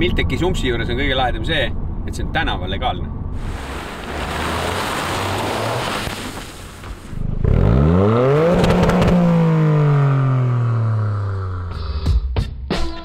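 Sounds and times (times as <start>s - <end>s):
tyre noise on dirt road: 3.4s - 10.2s
car engine revving: 3.4s - 12.0s.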